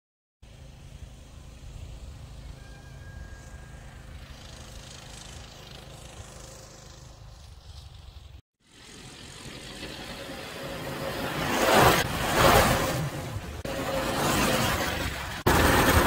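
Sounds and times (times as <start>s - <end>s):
minibike engine running: 0.5s - 11.8s.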